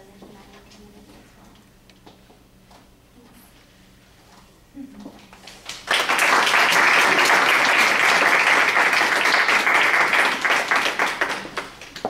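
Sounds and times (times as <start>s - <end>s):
audience applauding: 5.6s - 12.0s.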